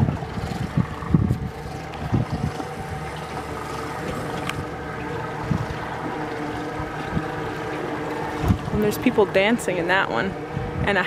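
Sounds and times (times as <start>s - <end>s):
wind thumps on microphone: 0.0s - 4.6s, 8.4s - 8.9s
outboard motor running: 0.0s - 11.0s.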